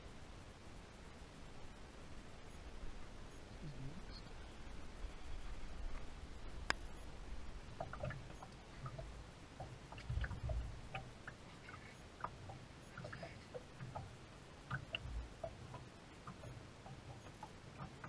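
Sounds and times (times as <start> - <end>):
water lapping against boat hull: 4.6 - 18.0
low thumps of boat shifting: 7.5 - 12.4, 14.7 - 18.0.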